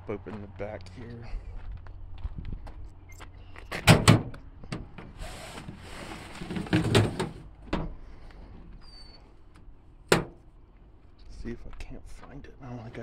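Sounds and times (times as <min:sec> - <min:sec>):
tailgate metal clunks: 0:03.7 - 0:05.2, 0:10.1 - 0:10.4
tailgate knocks: 0:03.8 - 0:05.1
scraping rustle: 0:05.2 - 0:07.4.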